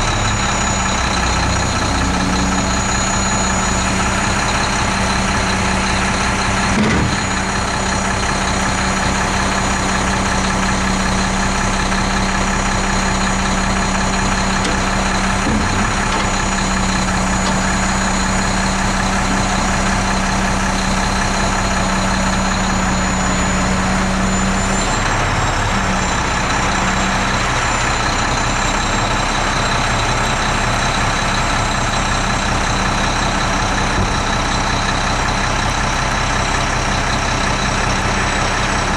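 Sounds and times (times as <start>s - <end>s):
truck engine running: 0.0s - 38.9s
truck hydraulics working: 0.0s - 38.9s
metal clunk: 6.7s - 7.3s, 14.2s - 18.4s.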